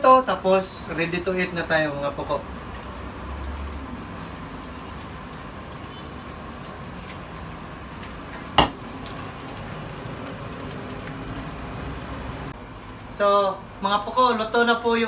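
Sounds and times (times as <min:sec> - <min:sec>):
dish clattering on counter: 0:08.6 - 0:08.8
dishes clinking: 0:08.6 - 0:08.8.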